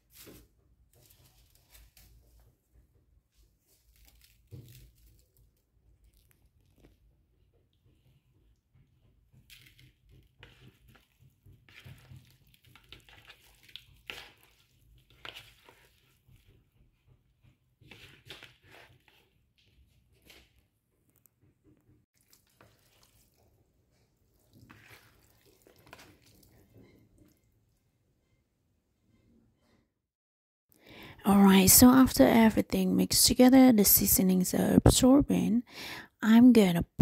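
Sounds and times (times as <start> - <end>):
hand kneading raw chicken: 0.0 - 20.6, 22.1 - 27.4.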